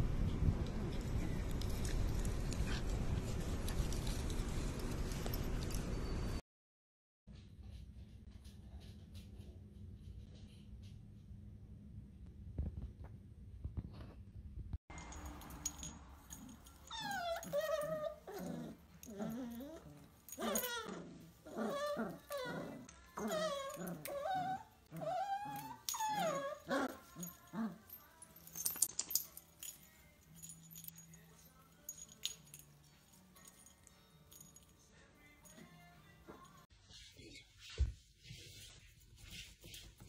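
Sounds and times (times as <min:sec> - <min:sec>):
dogs whining and yelping: 0:15.4 - 0:28.9.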